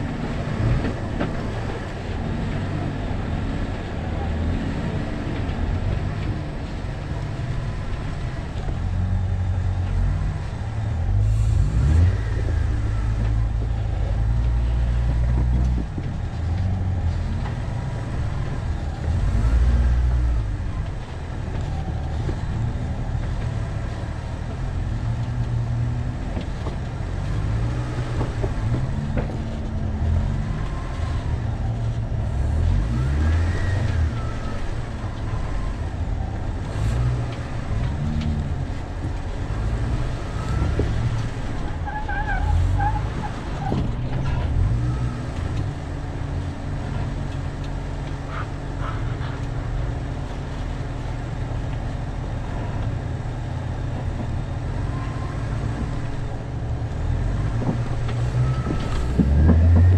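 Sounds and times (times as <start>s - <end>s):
off-road vehicle engine rumbling: 0.0s - 59.9s.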